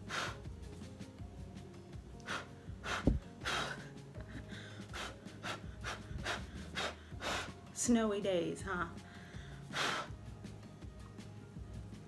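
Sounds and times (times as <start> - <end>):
woman breathing and gasping: 0.0 - 0.5, 2.2 - 7.7, 9.0 - 10.2
faint music: 0.0 - 12.0.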